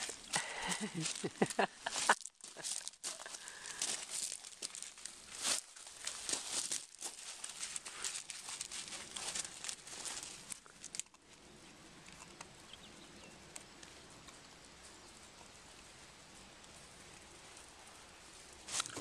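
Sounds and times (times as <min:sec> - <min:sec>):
footsteps crunching on gravel: 0:00.0 - 0:11.0, 0:18.7 - 0:19.0
outdoor hiss: 0:00.0 - 0:11.7, 0:12.5 - 0:19.0.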